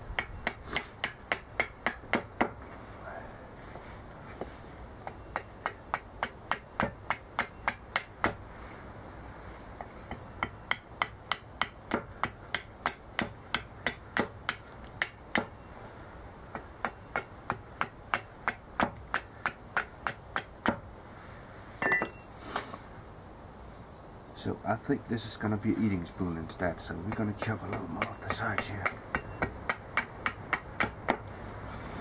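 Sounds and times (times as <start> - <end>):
hatchet chopping wood: 0.2 - 2.6, 5.1 - 8.4, 10.1 - 15.6, 16.5 - 20.9, 27.0 - 31.3.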